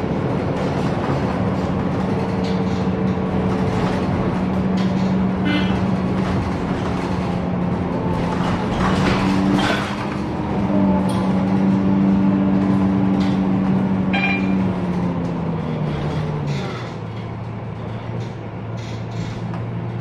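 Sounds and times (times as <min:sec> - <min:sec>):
bus engine and drivetrain hum: 0:00.0 - 0:20.0
road noise: 0:00.0 - 0:20.0.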